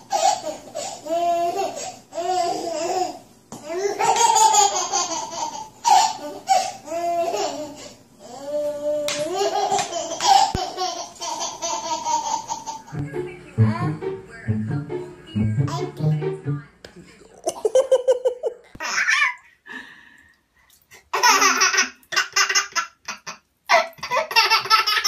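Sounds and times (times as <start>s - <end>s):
baby giggling: 0.0s - 7.8s, 9.1s - 13.0s, 21.1s - 25.0s.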